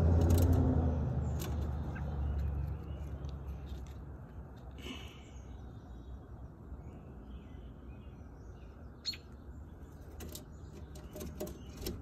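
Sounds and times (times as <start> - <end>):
bird chirps: 4.9 - 12.0.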